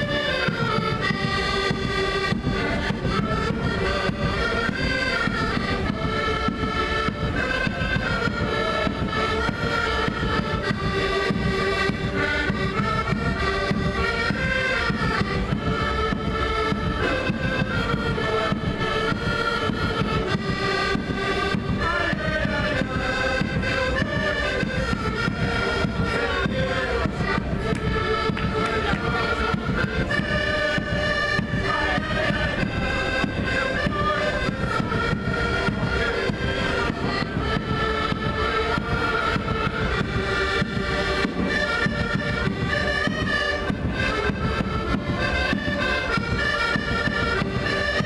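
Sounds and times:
accordions playing a tune: 0.0 - 48.0.

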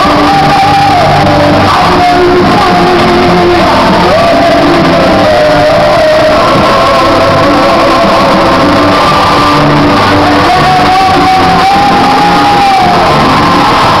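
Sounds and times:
crowd shouting: 0.0 - 14.0
live band and singer: 0.0 - 14.0.

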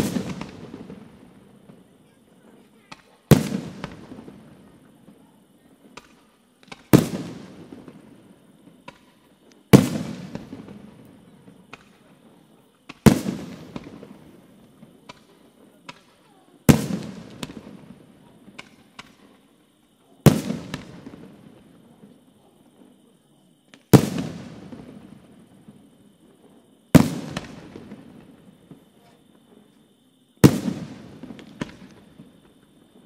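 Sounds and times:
firework shells bursting: 0.0 - 1.9, 2.8 - 4.8, 5.8 - 12.2, 12.8 - 19.6, 20.3 - 21.8, 26.9 - 28.8, 30.4 - 32.8
faint cracks and pops: 5.9 - 7.0, 8.8 - 9.7, 11.0 - 12.2, 14.6 - 16.3, 18.5 - 19.4, 23.6 - 24.0.

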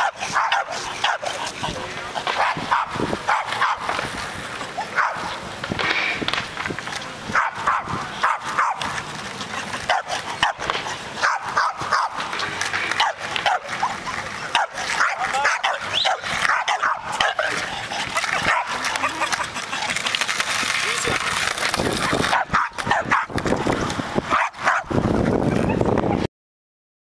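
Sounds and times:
dog yipping: 4.8 - 5.2, 14.6 - 17.4.

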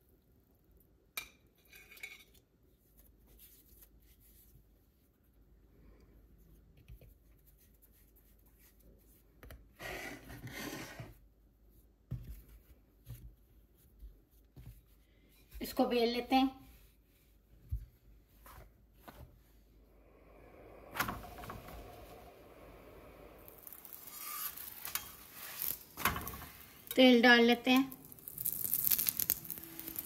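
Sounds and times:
dough scraping in flour: 23.4 - 27.0.

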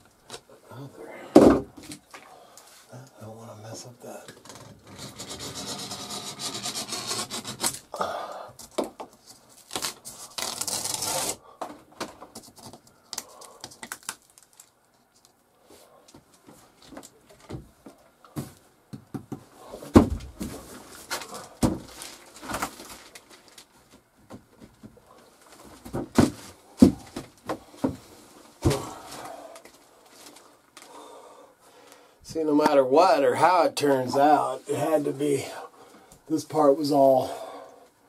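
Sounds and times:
ceiling paneling scraping and tearing: 4.5 - 7.8
heavy thumps: 21.5 - 22.0, 25.7 - 29.2.

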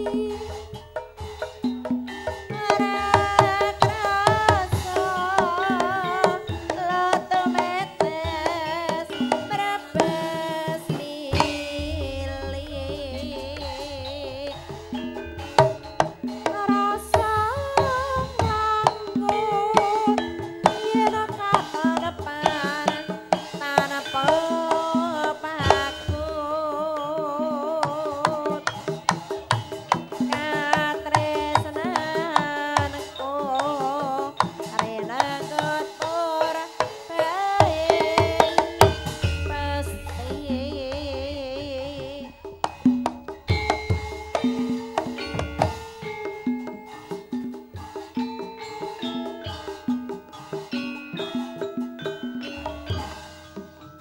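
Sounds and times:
wavering high melody: 0.0 - 35.2, 37.6 - 54.0
hand drum strokes: 0.0 - 54.0
bronze gongs: 11.3 - 19.3, 38.0 - 54.0
low gong tones: 11.4 - 16.4, 38.9 - 44.9.

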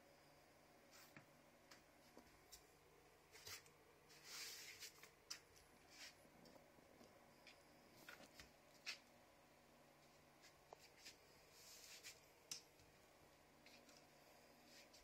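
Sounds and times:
faint rustles and scrapes: 0.8 - 1.4, 2.0 - 9.2, 9.9 - 12.4, 13.5 - 15.0.

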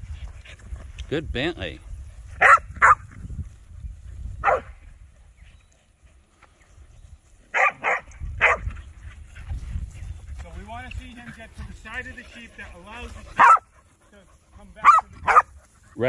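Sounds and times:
dog barking: 2.4 - 3.0, 4.4 - 4.8, 7.5 - 8.7, 13.3 - 13.7, 14.8 - 15.5.

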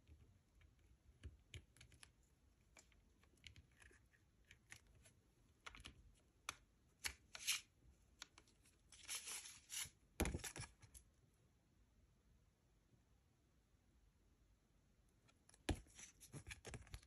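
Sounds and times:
paper rustle: 8.9 - 10.8.

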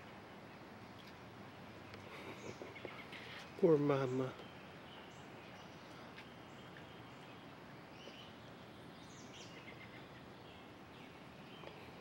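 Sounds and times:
faint hiss: 0.0 - 12.0.

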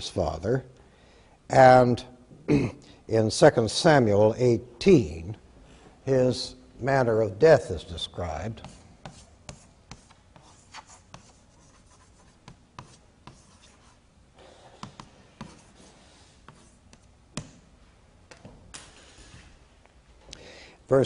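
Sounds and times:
chalk tapping and scratching on board: 8.5 - 17.6.

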